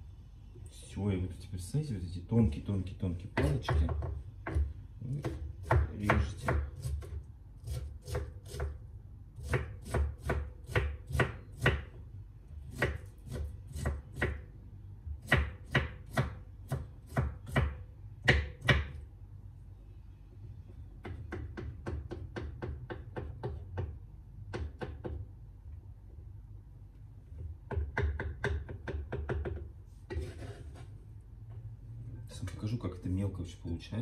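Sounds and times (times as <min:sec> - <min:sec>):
knife chopping on wooden board: 0:03.4 - 0:08.8, 0:09.4 - 0:12.0, 0:12.7 - 0:14.4, 0:15.2 - 0:19.0, 0:21.0 - 0:25.3.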